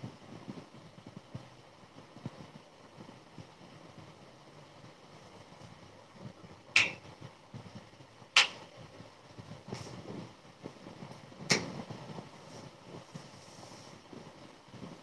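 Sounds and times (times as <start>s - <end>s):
low room noise: 0.0s - 15.0s
sharp clicks or knocks: 6.8s - 7.0s, 8.4s - 8.6s.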